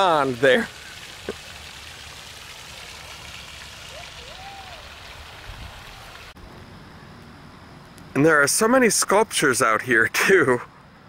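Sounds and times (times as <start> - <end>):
fountain water splashing: 0.0 - 6.4.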